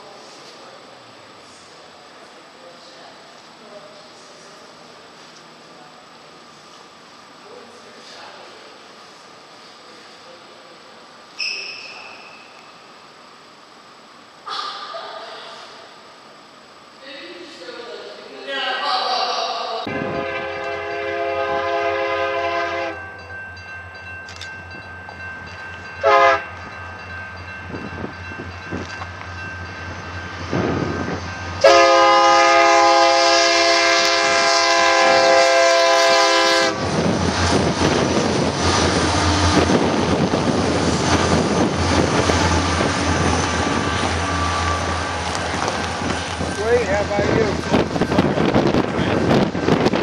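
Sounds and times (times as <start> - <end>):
train horn: 19.9 - 23.1, 26.0 - 26.5, 31.6 - 36.8
freight train cars clattering: 23.1 - 50.0.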